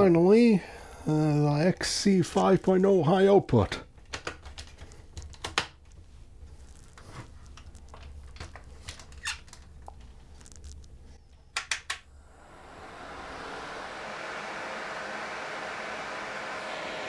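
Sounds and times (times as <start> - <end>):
plastic clicks and squeaks: 6.9 - 12.0
fan airflow: 12.0 - 17.0.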